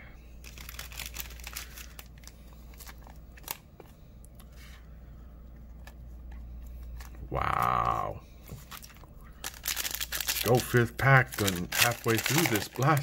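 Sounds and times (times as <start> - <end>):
cards rustling and clicking: 0.4 - 4.8, 8.4 - 13.0.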